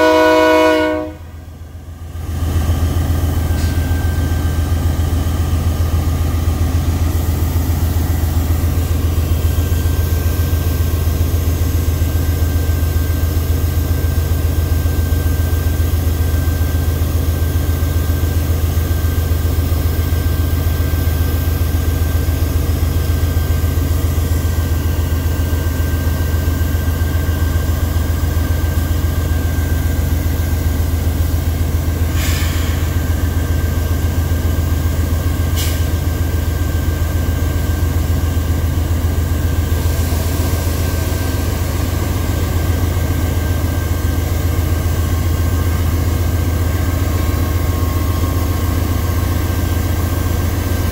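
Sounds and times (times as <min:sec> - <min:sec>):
locomotive engine humming: 0:00.0 - 0:50.9
short hiss: 0:32.1 - 0:32.9.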